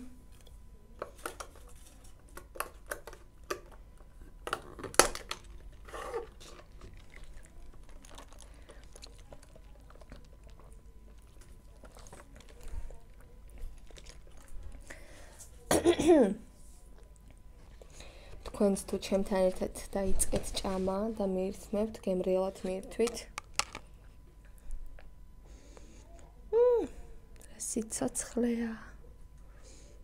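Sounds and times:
food packaging clicks and crinkles: 0.2 - 15.6, 22.6 - 25.2.

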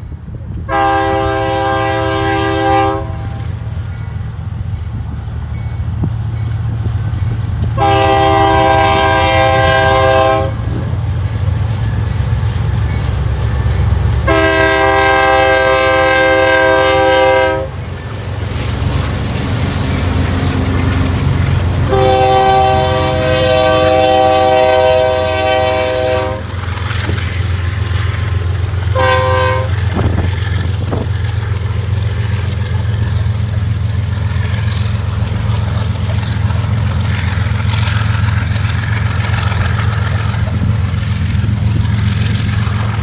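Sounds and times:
locomotive engines rumbling: 0.0 - 43.0
locomotive air horn blasts: 0.7 - 3.6, 7.8 - 10.9, 14.2 - 17.9, 21.8 - 26.6, 28.9 - 30.1.

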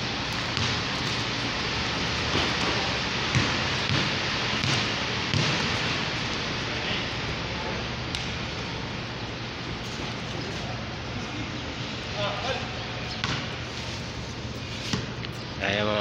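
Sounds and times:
background hiss and din: 0.0 - 16.0
basketball bouncing on concrete: 0.3 - 6.1, 13.2 - 13.6.

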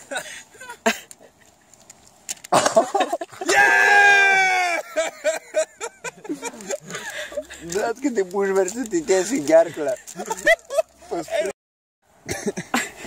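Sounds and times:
bursts of laughter: 2.5 - 7.6, 10.0 - 11.5
man yelling: 3.4 - 4.9.

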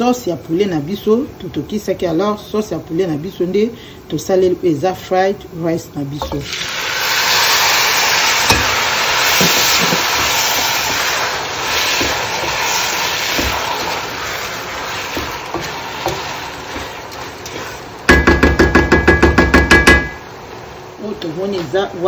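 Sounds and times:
spatula scraping rice in a pan: 8.5 - 18.1.

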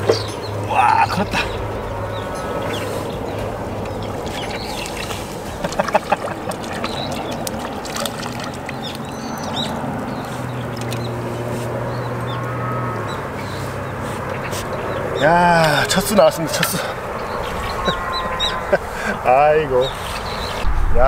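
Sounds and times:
steady background noise: 0.0 - 21.0
fish splashing at water surface: 3.8 - 11.1.

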